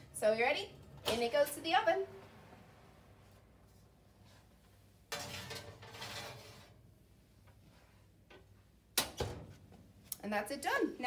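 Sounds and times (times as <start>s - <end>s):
metal baking tray scraping: 5.1s - 6.8s.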